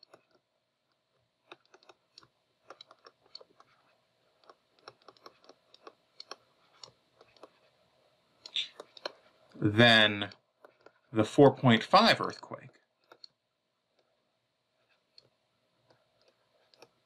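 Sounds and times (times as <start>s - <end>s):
stylus tapping on tablet screen: 0.0s - 7.7s, 10.3s - 11.1s, 14.8s - 17.0s.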